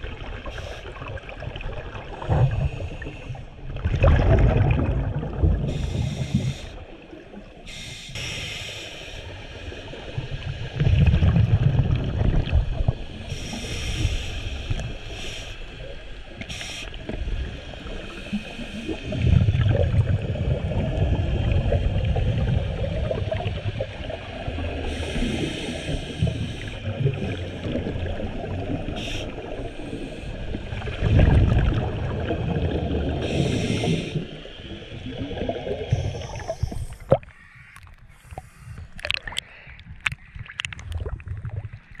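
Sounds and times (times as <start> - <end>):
exhaust bubbling underwater: 0.0 - 8.0, 9.9 - 13.7, 17.0 - 42.0
regulator inhale hiss: 0.4 - 1.0, 2.5 - 3.6, 5.7 - 7.0, 7.6 - 10.8, 13.0 - 19.4, 24.0 - 28.1, 28.9 - 30.8, 33.2 - 39.8.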